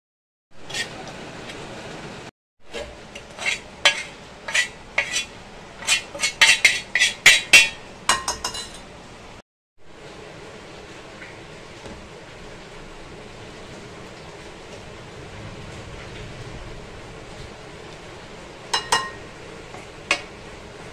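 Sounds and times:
steel spoon scraping iron pan: 0.6 - 1.1, 2.7 - 8.9.

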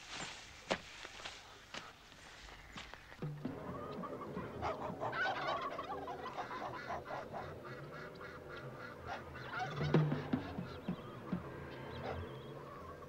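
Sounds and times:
geese honking: 2.7 - 13.0.

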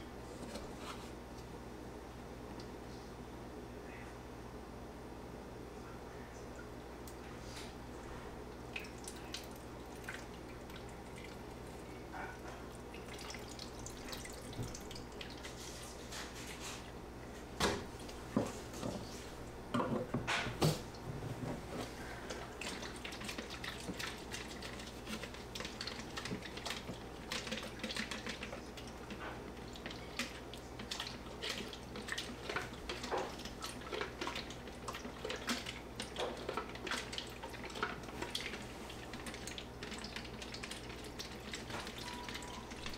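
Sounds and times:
liquid pouring and trickling: 8.6 - 11.9, 12.7 - 16.8, 22.0 - 42.9.

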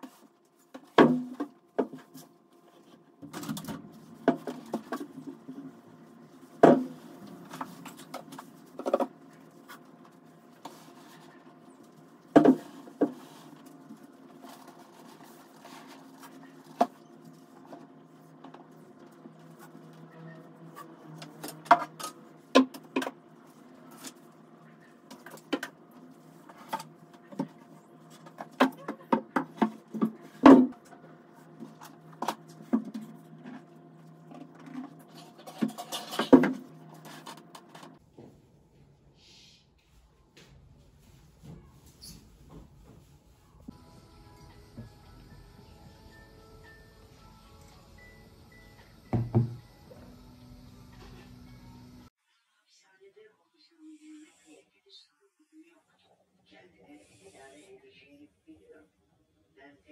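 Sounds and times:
items knocking on wooden shelf: 49.1 - 49.6.

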